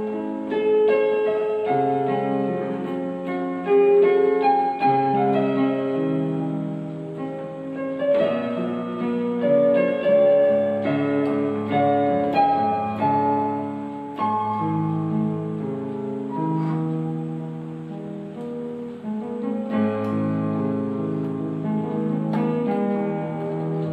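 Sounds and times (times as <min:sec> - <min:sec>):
electronic keyboard piano melody: 0:00.0 - 0:23.9.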